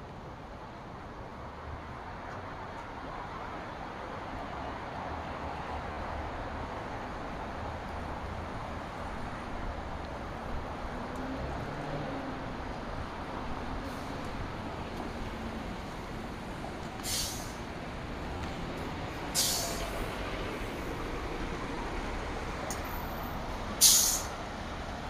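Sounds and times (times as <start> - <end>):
city traffic: 0.0 - 25.0
bus air brakes hissing: 13.8 - 14.4, 16.8 - 17.8, 19.2 - 20.9, 22.7 - 24.5.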